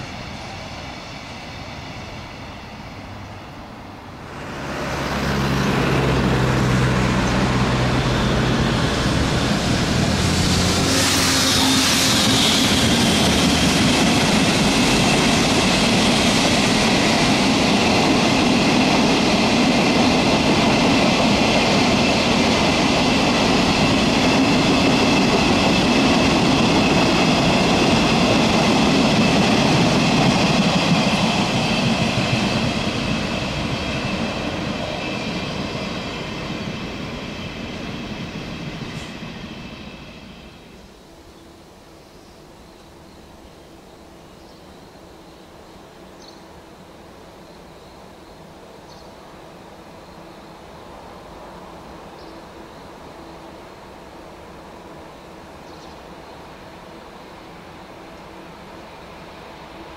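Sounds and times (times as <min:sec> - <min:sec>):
high wheel squeal: 0:07.1 - 0:13.3.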